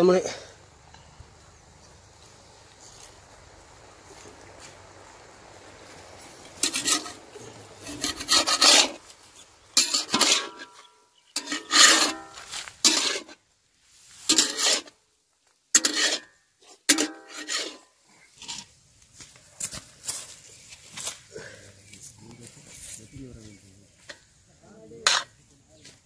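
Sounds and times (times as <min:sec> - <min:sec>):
metal spatula scraping iron pan: 0:06.6 - 0:09.1, 0:09.7 - 0:13.4, 0:14.2 - 0:15.0, 0:15.8 - 0:18.7, 0:25.0 - 0:25.4.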